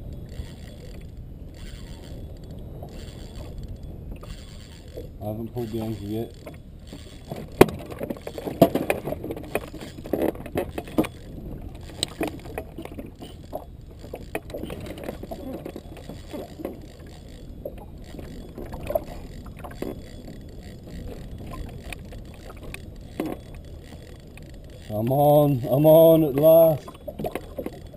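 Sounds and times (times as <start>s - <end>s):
fishing rod and reel knocking: 0.0s - 27.9s.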